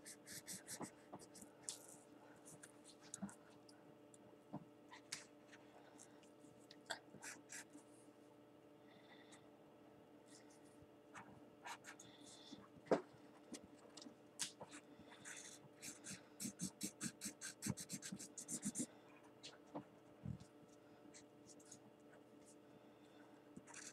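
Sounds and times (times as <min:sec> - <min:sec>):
marker scratching across paper: 0:00.0 - 0:01.4, 0:15.2 - 0:18.9, 0:23.7 - 0:23.9.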